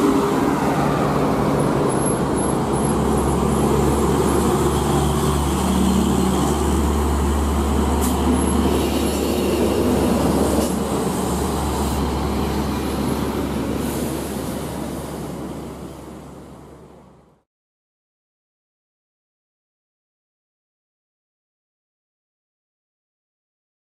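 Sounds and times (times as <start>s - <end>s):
road noise: 0.0s - 17.5s.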